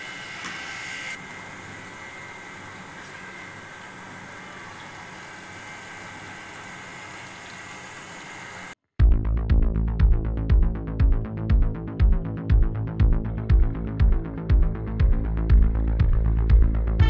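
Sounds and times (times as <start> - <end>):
drilling rig machinery humming: 0.0 - 8.8
electronic background music: 9.0 - 17.0.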